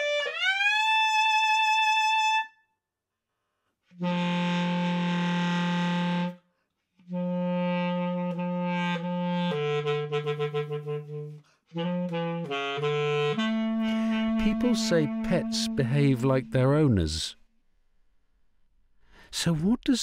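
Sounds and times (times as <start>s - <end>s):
basset horn playing: 3.9s - 6.4s, 7.0s - 17.2s.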